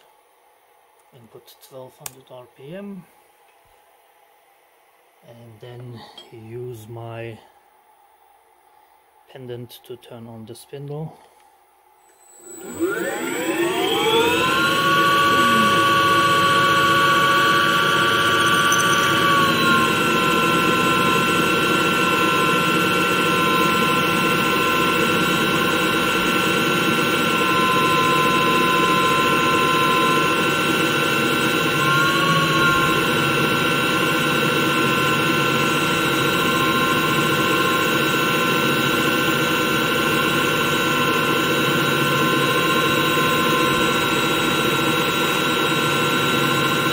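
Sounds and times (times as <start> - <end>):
drill bit boring into workpiece: 12.1 - 46.9
lathe spindle whining: 12.1 - 46.9.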